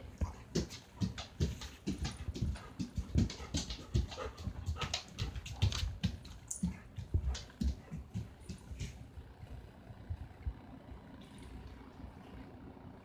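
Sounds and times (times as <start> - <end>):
dog panting: 0.0 - 9.1.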